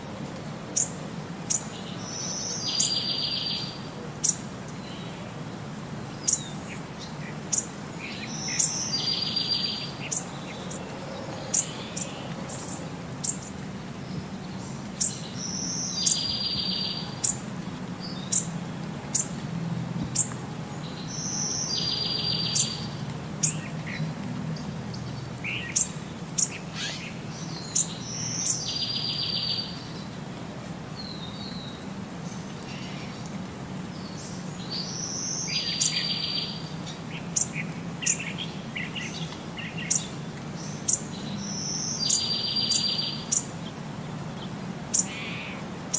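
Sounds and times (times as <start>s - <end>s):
bird chirping and trilling: 37.4s - 43.5s.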